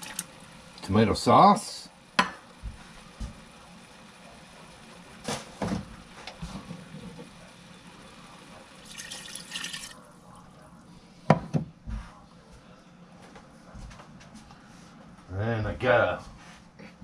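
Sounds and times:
sauce pouring into pot: 0:08.8 - 0:10.0.

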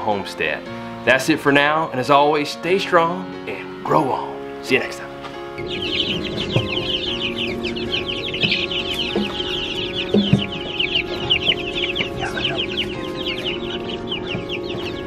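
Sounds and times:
ducklings and chicks peeping: 0:04.8 - 0:15.0.

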